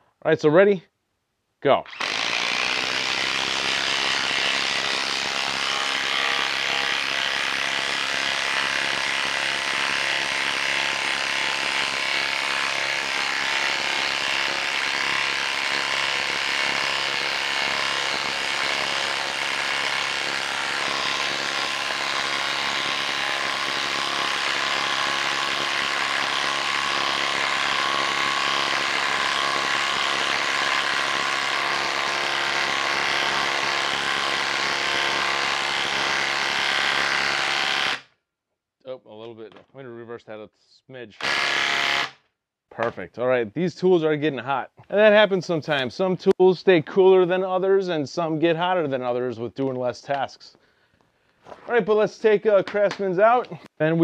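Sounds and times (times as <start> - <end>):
impact driver hammering: 1.9 - 38.0, 41.2 - 42.2.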